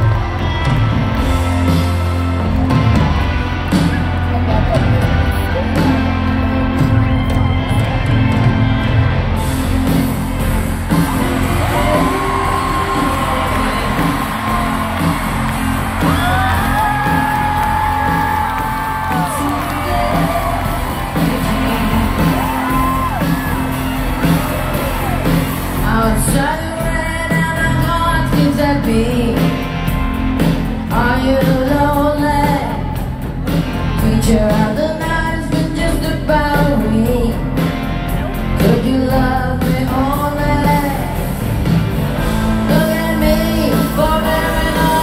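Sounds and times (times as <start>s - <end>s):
crowd whooping and yelling: 0.0s - 26.5s
live rock band playing: 0.0s - 45.0s
person singing: 10.9s - 23.8s, 25.2s - 29.9s, 30.5s - 37.7s, 38.5s - 41.5s, 42.2s - 45.0s.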